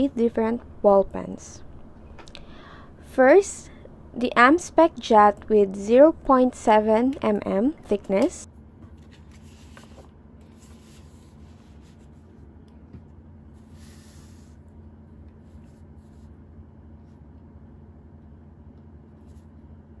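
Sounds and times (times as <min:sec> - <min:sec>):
steady low hum: 0:00.0 - 0:20.0
paper rustling: 0:08.9 - 0:12.2.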